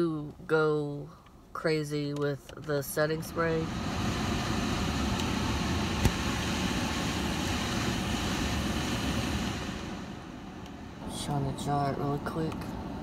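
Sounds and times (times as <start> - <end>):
air blowing in car cabin: 2.7 - 13.0.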